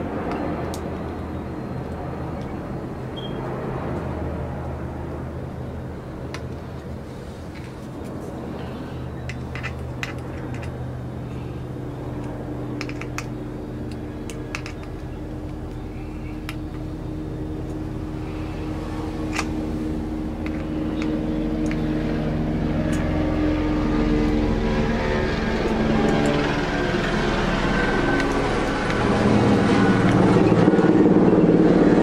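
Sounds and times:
engine drone: 0:00.0 - 0:32.0
plastic parts clicking: 0:09.2 - 0:10.8, 0:12.2 - 0:13.3, 0:13.9 - 0:15.8.

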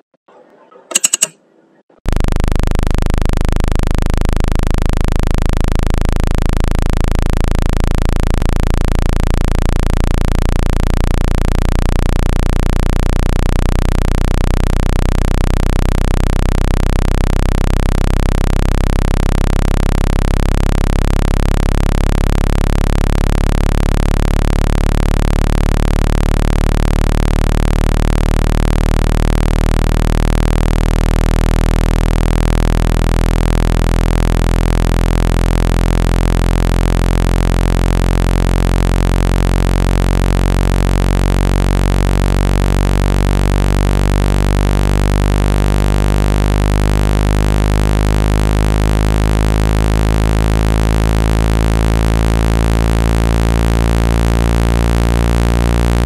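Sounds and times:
low buzzy speaker-cleaning tone: 0:02.1 - 0:56.0.

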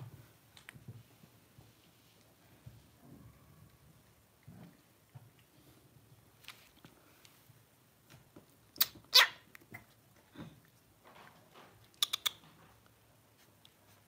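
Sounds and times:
puppy yipping: 0:08.8 - 0:09.4.

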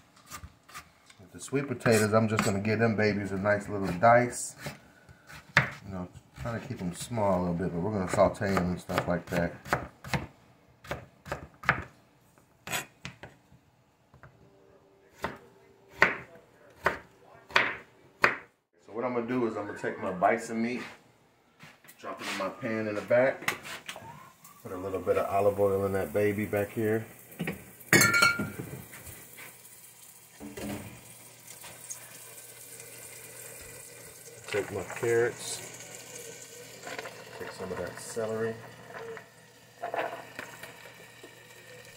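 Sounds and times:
knife chopping on plastic board: 0:09.3 - 0:11.9
water boiling in a pot: 0:24.6 - 0:41.9
glass bottle clink: 0:27.9 - 0:28.6.

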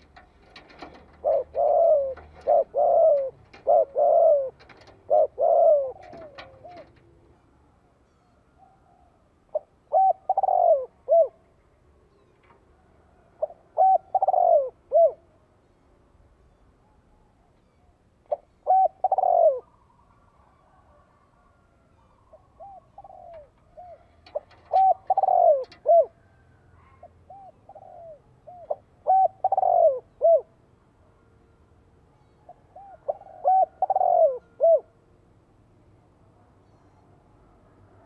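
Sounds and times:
dove cooing: 0:00.0 - 0:07.3, 0:08.6 - 0:11.5, 0:13.3 - 0:15.3, 0:18.3 - 0:30.6, 0:32.5 - 0:35.0.

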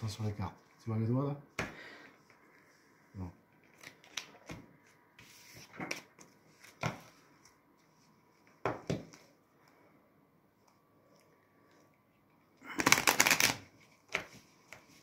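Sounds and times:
playing cards clicking: 0:12.8 - 0:14.3.

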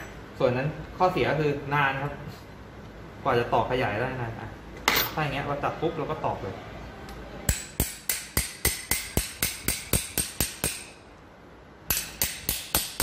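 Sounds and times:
hammer striking metal punch: 0:07.5 - 0:11.1, 0:11.9 - 0:13.0.

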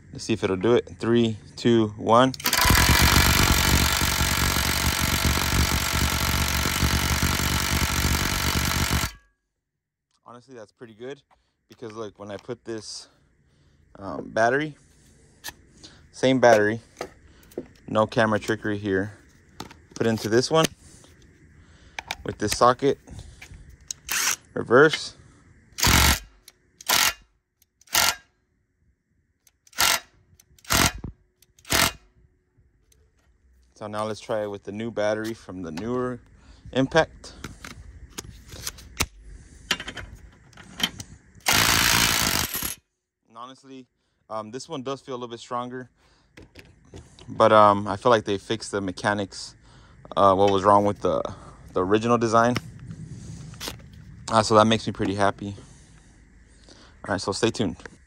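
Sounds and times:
impact wrench hammering: 0:02.4 - 0:09.3, 0:27.9 - 0:28.2, 0:29.7 - 0:32.0.

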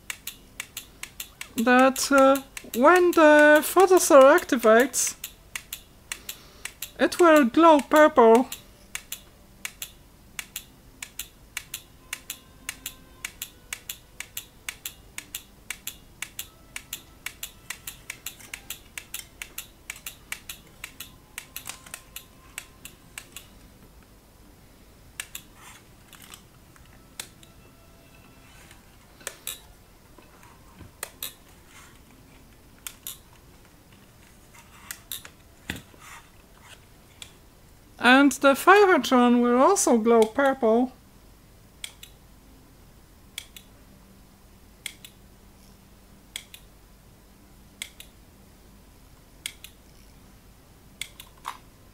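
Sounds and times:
exposure timer clicking: 0:00.0 - 0:23.5.

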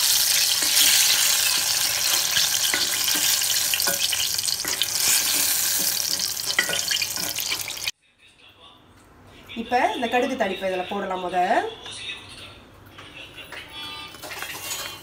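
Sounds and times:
hot oil sizzling: 0:00.0 - 0:07.9.

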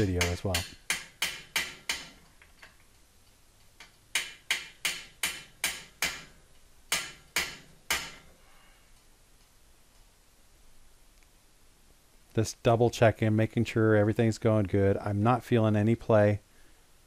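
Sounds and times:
hammer tapping: 0:00.0 - 0:02.3, 0:03.8 - 0:08.3.

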